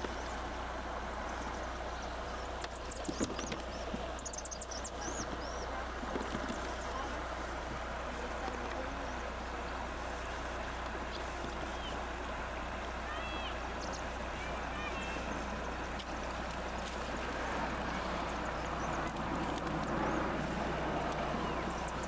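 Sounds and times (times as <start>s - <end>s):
constant low hum: 0.0s - 22.0s
outdoor microphone hiss: 0.0s - 22.0s.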